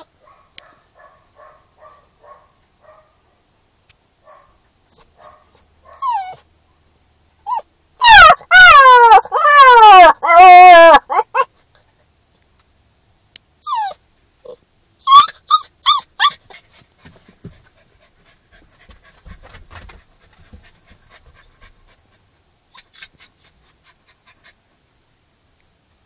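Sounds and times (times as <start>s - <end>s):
puppy howling yelps: 4.9s - 6.5s, 7.5s - 11.5s, 13.6s - 16.6s, 22.7s - 23.8s
puppy panting: 16.5s - 24.8s.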